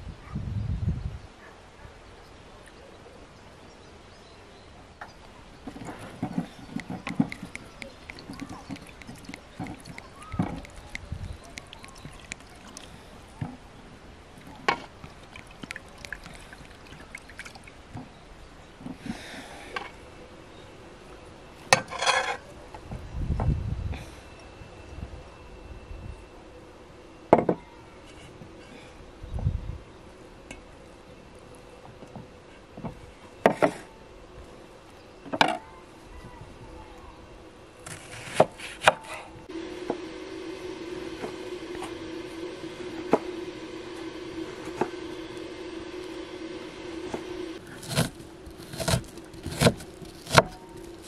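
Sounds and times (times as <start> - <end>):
water trickling and dripping: 5.7 - 18.3
small ticks: 6.4 - 13.0.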